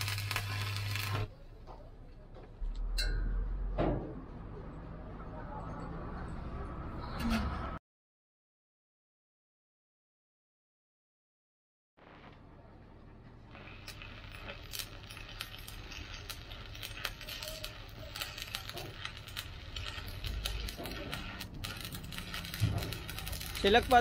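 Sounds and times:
welding arc crackling: 0.0s - 1.3s, 12.0s - 12.4s, 13.5s - 24.0s.

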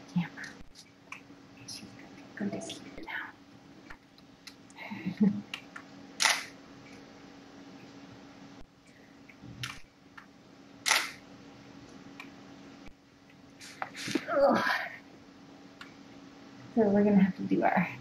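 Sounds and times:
steady low hum: 0.0s - 18.0s
camera shutter clicks: 6.2s - 6.5s, 10.8s - 11.2s.

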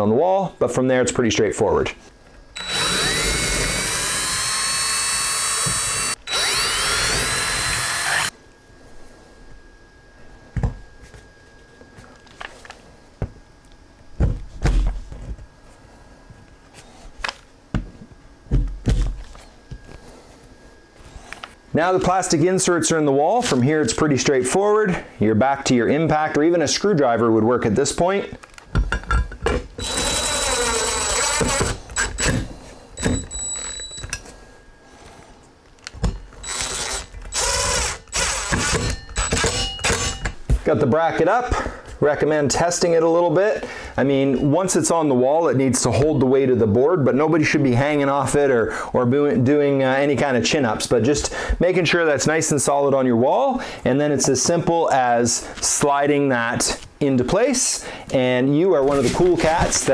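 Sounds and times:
impact driver running: 2.6s - 8.3s, 29.8s - 33.9s, 36.0s - 40.2s.

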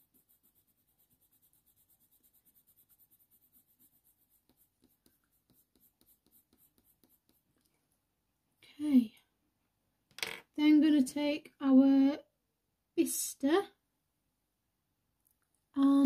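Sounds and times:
pencil scratching on paper: 0.0s - 7.5s.

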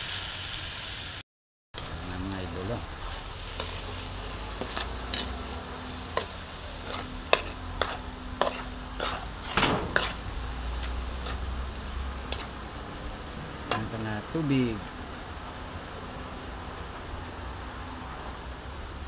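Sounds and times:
light sizzle: 0.0s - 1.2s, 1.8s - 19.0s
metal ladle scraping steel wok: 2.8s - 13.0s.

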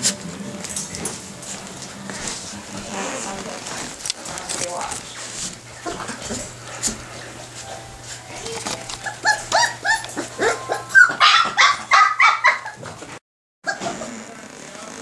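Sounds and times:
puppies yipping: 8.2s - 13.1s, 13.7s - 14.1s.

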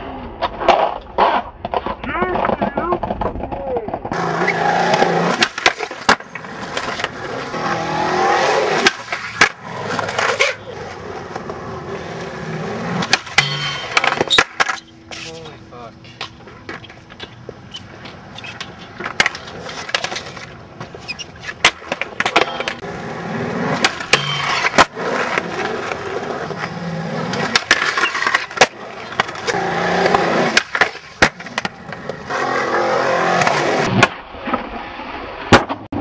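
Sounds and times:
skateboard wheels rolling on concrete: 0.0s - 36.0s
skateboard pops and landings: 4.8s - 7.3s, 8.2s - 10.6s, 13.0s - 14.9s, 23.7s - 26.2s, 27.3s - 32.6s, 33.2s - 36.0s.

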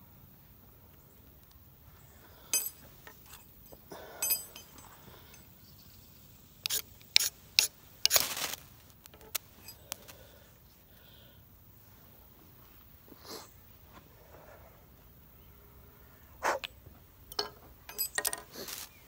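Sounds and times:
ferro rod scraping strikes: 6.6s - 8.5s.

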